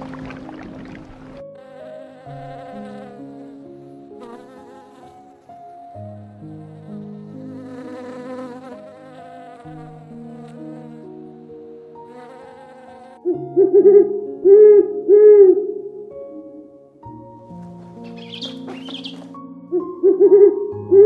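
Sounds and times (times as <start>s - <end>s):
soft background music: 0.0s - 21.0s
honeybee buzzing: 1.3s - 13.2s, 18.0s - 19.4s.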